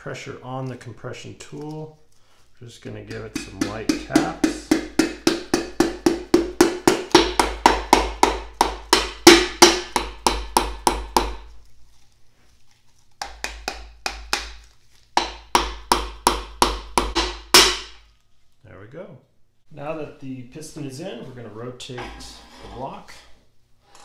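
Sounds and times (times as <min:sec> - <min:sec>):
mallet handle tapping piston: 0:03.1 - 0:11.4, 0:13.2 - 0:14.6, 0:15.2 - 0:18.0.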